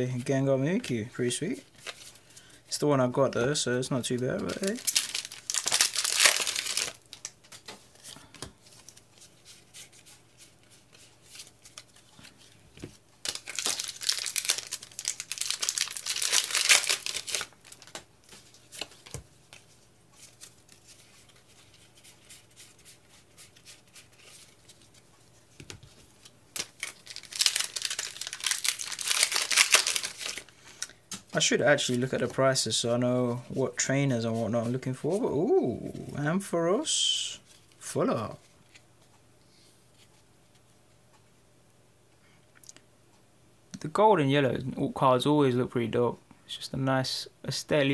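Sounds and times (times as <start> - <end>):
foil wrappers tearing and crinkling: 4.5 - 7.3, 13.2 - 18.0, 26.6 - 30.5.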